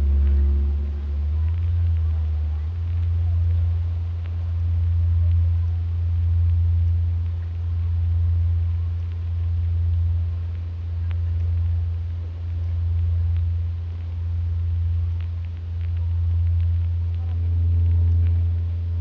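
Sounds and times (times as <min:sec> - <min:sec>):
faint ticks: 0:00.0 - 0:19.0
pulsing low hum: 0:00.0 - 0:19.0.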